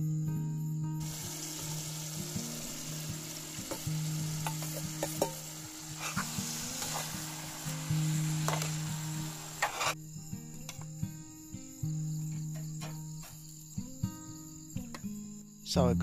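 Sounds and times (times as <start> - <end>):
food sizzling in a pan: 1.0 - 10.1.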